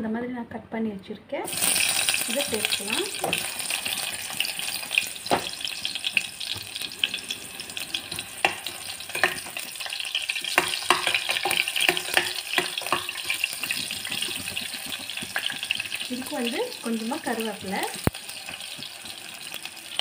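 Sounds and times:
onions sizzling in oil: 1.4 - 20.0
spoon knocking against pot: 8.1 - 9.5, 10.4 - 15.9.

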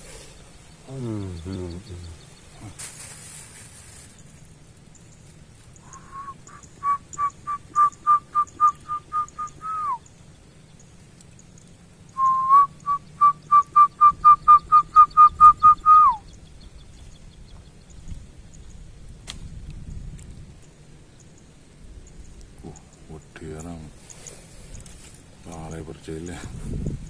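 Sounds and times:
whistled call: 5.8 - 10.1, 12.1 - 16.3.

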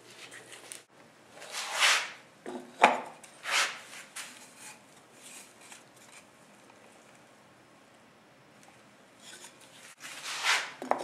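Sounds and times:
wood rubbing swishes: 3.4 - 4.4, 9.8 - 10.8.

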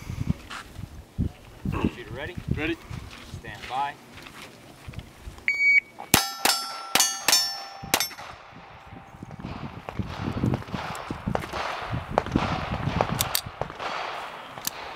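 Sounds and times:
shot-timer beep: 5.5 - 5.9
pistol shots: 6.1 - 8.7, 9.3 - 14.9
steel target plate ringing: 6.1 - 9.2.

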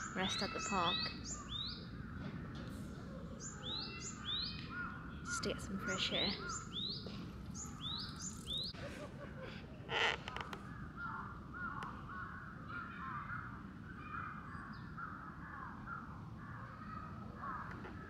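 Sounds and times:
crows cawing: 4.7 - 7.0, 9.9 - 18.0.

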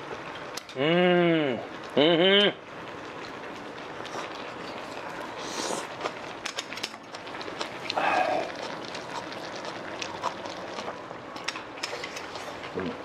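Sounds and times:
gas burner hissing: 0.0 - 13.0
slurping: 4.0 - 6.2, 7.4 - 11.0
utensils clicking against bowls: 11.4 - 12.4.

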